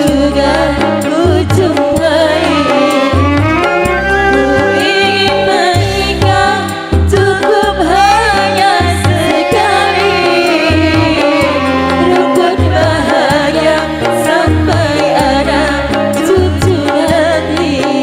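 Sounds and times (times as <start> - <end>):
hand drums: 0.0 - 18.0
keyboards: 0.0 - 18.0
woman singing into microphone: 0.0 - 18.0
bass beat: 1.6 - 7.9
violin: 2.0 - 6.9, 7.8 - 16.5.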